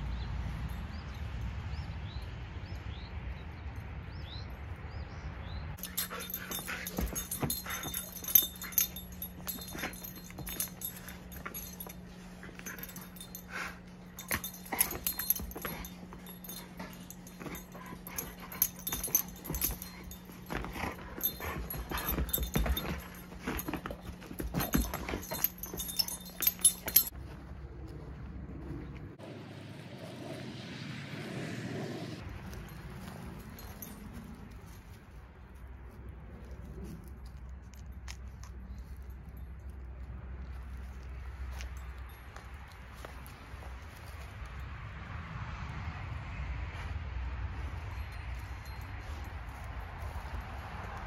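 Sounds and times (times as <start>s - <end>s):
puppy noises: 5.8s - 27.1s
scuffling clicks and knocks: 5.8s - 27.3s.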